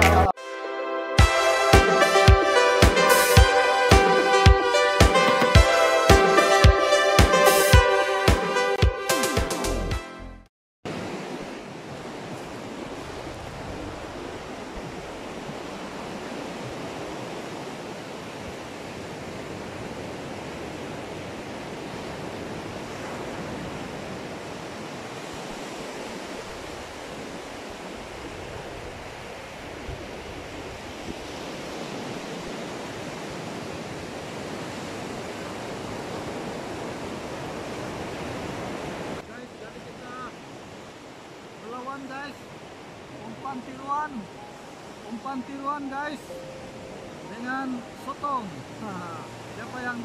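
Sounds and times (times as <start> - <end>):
ocean surf breaking: 0.0 - 9.6, 10.9 - 50.0.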